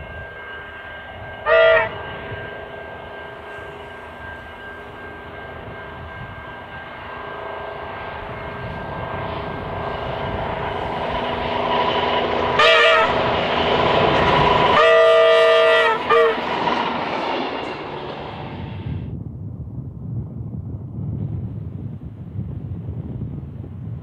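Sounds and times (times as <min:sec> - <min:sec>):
multi-note train horn: 0:00.0 - 0:10.9, 0:11.9 - 0:16.7
diesel train engine and wheels rumbling: 0:00.0 - 0:24.0.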